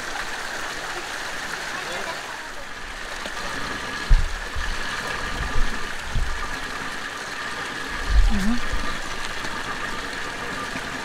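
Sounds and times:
water splashing from pipes: 0:00.0 - 0:11.0
dull low thumps: 0:04.1 - 0:06.6, 0:08.0 - 0:09.0.

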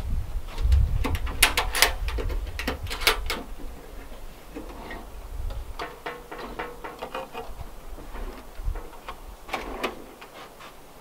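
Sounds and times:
metal toolbox latch clicks: 0:01.0 - 0:03.5.

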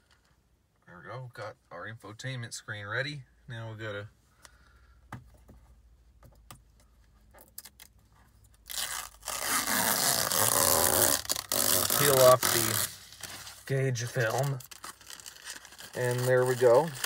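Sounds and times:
plastic film crinkling and tearing: 0:08.6 - 0:17.0.

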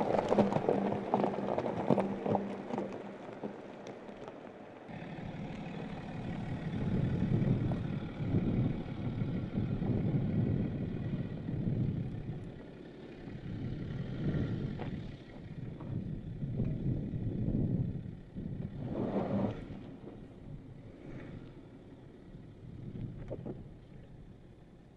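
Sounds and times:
diesel engine rumbling: 0:00.0 - 0:24.9
vehicle driving over rough dirt: 0:00.0 - 0:24.9.

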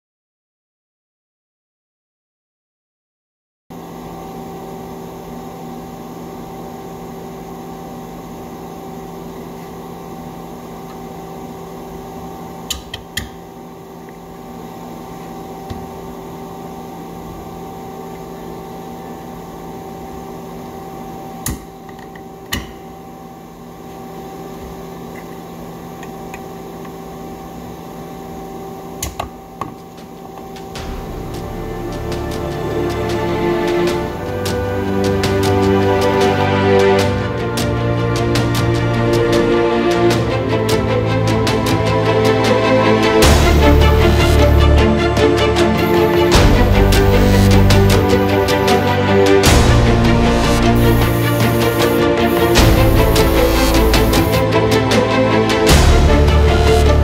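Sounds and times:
electric motor humming: 0:43.3 - 0:54.6.

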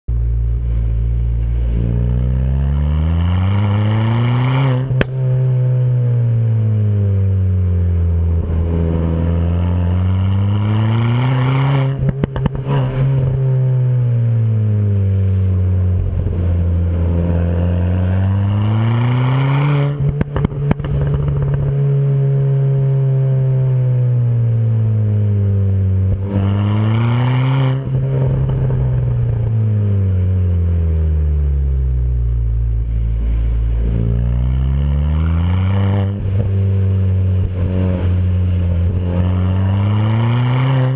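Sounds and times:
car engine revving: 0:00.1 - 0:40.9
exhaust crackles: 0:00.1 - 0:40.9.

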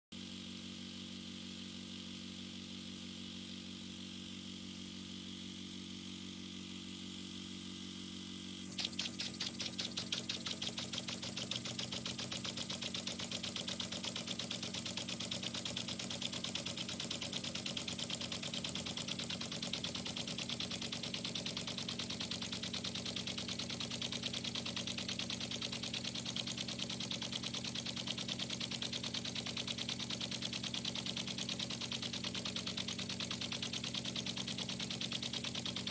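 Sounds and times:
steady low hum: 0:02.4 - 0:26.7
model engine clicking: 0:08.8 - 0:35.9.

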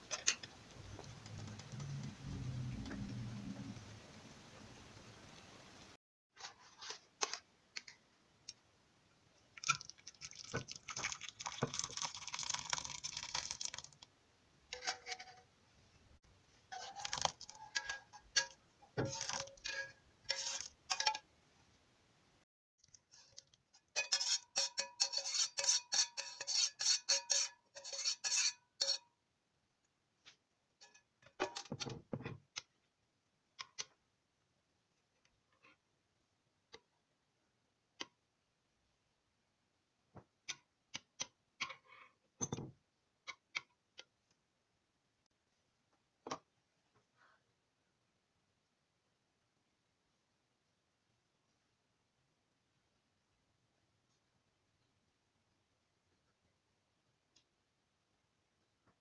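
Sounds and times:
metal spoon clinking on cookware: 0:23.9 - 0:29.0.

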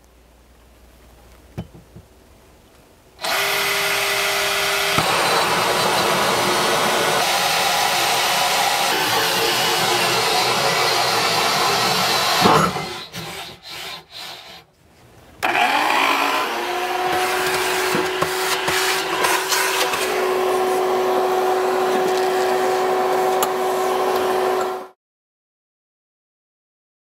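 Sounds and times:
cordless drill cutting countertop: 0:03.2 - 0:14.6, 0:15.4 - 0:25.0.

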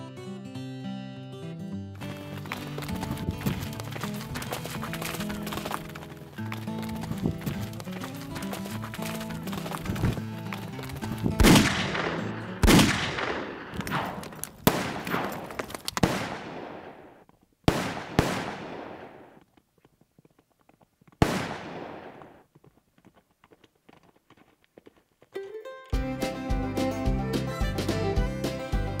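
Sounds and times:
gunshots with echoing tail: 0:11.2 - 0:19.4, 0:21.2 - 0:22.4
background music: 0:26.0 - 0:29.0.

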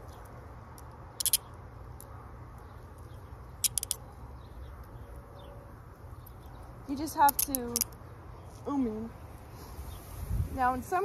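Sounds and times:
handcuff lock clicking: 0:01.2 - 0:01.4, 0:03.6 - 0:04.0.

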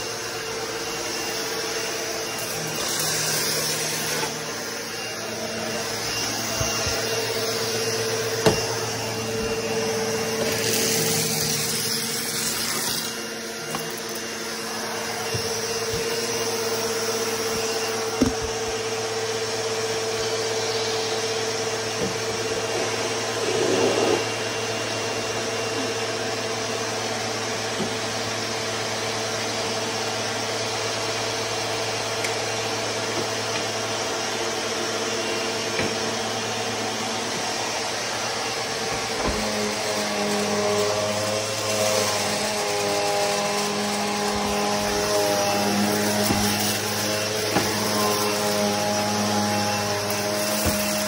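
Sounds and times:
vacuum cleaner running: 0:00.0 - 0:51.0.

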